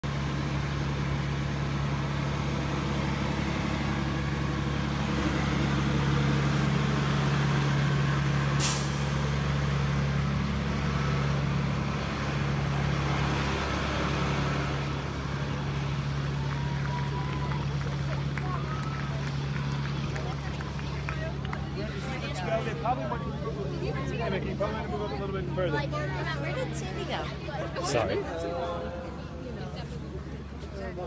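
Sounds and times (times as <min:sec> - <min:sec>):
engine idling: 0:00.0 - 0:27.0
short hiss: 0:08.6 - 0:09.2.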